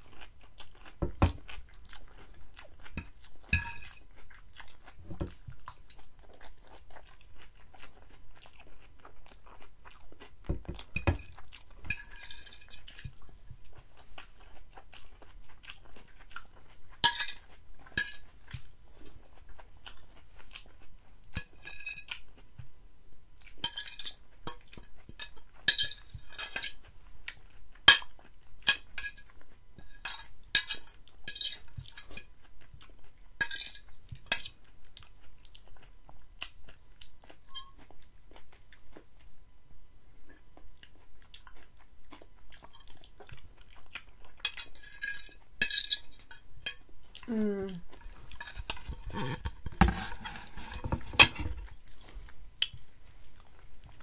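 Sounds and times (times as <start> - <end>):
chewing: 0.0 - 22.7, 23.4 - 39.4, 40.2 - 54.0
fork scraping glass plate: 48.0 - 51.7.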